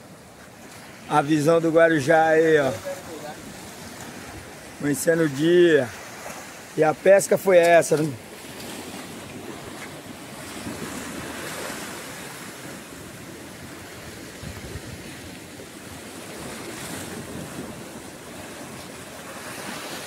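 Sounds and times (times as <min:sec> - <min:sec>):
waves breaking over rocks: 0:00.0 - 0:20.0
wind buffeting microphone: 0:08.4 - 0:20.0.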